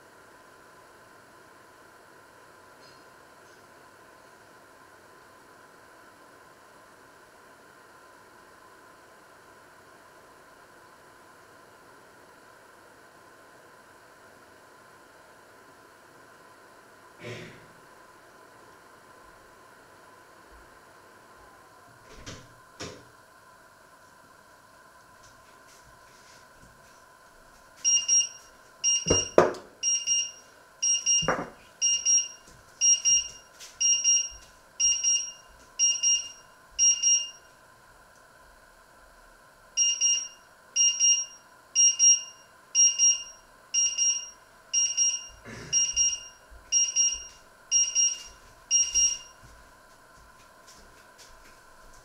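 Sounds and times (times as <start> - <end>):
timer alarm beeping: 27.8 - 37.5, 39.8 - 49.4.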